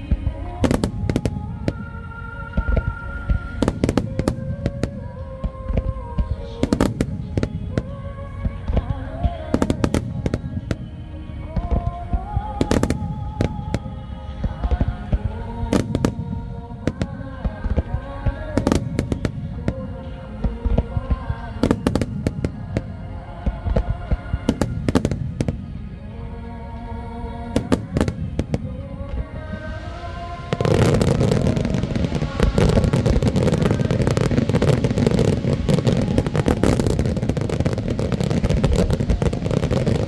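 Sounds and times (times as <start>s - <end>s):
fireworks bursting with bangs: 0.0s - 25.9s, 27.6s - 40.0s
music with held notes: 0.0s - 40.0s
fireworks crackle: 27.6s - 40.0s.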